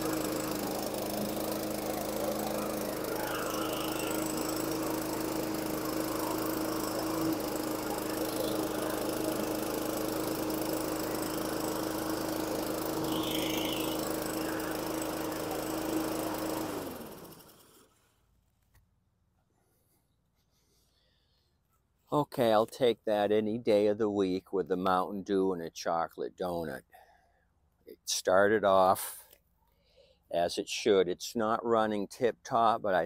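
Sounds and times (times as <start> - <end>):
lawn mower engine running: 0.0 - 18.0.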